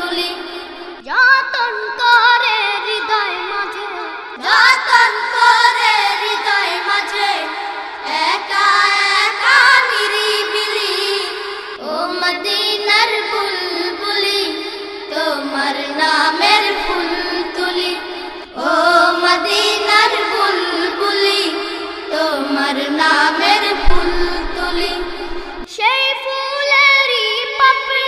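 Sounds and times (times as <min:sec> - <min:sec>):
high voice singing ornamented melody: 0:08.1 - 0:28.0.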